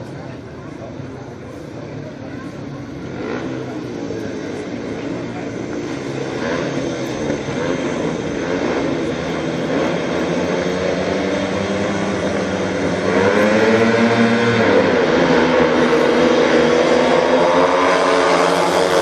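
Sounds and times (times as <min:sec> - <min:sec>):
motorcycle engines revving: 0:00.0 - 0:19.0.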